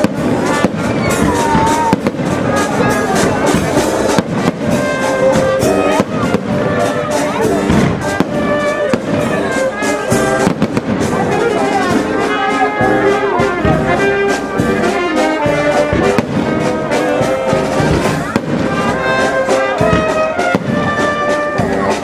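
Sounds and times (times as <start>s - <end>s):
brass band playing: 0.0s - 22.0s
fireworks banging and crackling: 0.0s - 22.0s.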